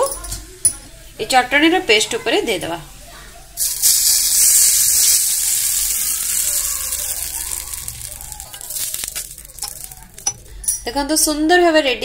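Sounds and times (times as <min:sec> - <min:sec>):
hot oil sizzling: 0:02.5 - 0:10.6.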